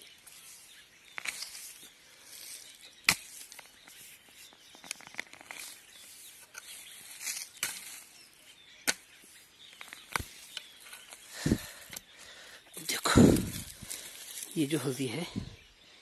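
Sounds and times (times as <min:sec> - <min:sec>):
tool striking soil: 0:00.0 - 0:12.0
dirt and leaves rustling: 0:00.0 - 0:15.8.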